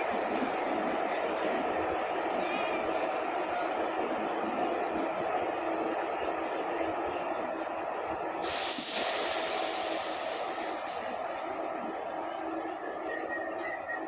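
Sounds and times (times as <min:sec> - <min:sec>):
thin wheel squeal: 0:00.0 - 0:01.8, 0:07.9 - 0:14.0
train wheels on track: 0:00.0 - 0:14.0
sharp hiss: 0:08.4 - 0:11.0.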